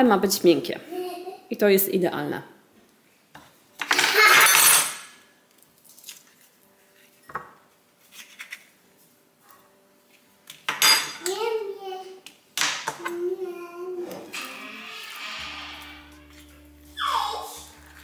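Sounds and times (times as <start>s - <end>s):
utensils clinking on dishes: 3.8s - 5.2s, 10.7s - 11.4s
child vocal sound: 13.0s - 15.0s, 16.9s - 18.0s.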